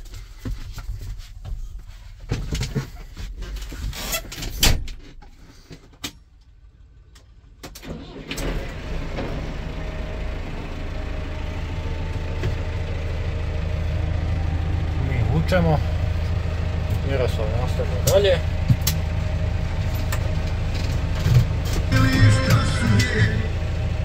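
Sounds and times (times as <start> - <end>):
tractor engine idling: 5.4 - 24.0
tractor diesel engine starting: 6.6 - 24.0.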